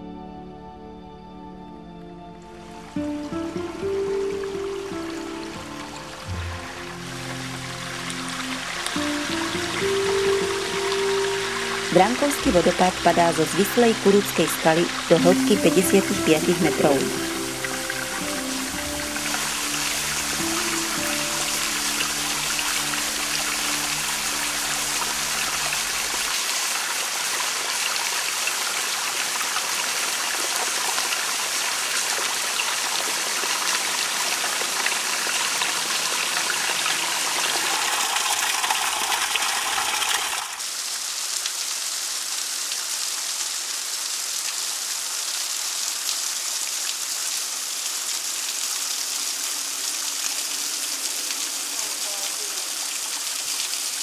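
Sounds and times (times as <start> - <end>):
faint music tones: 0.0 - 26.3
waterfall splashing on rock: 3.4 - 54.0.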